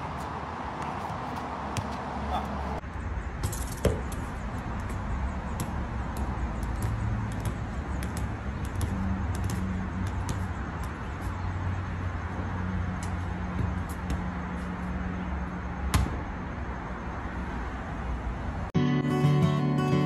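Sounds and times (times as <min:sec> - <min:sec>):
football tapping on feet: 0:03.4 - 0:11.3, 0:12.9 - 0:14.6.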